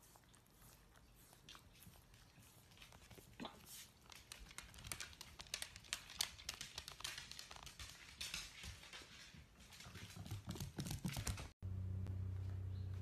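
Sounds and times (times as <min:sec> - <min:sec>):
claws clicking on hardwood floor: 0:02.7 - 0:11.5
steady low hum: 0:11.6 - 0:13.0.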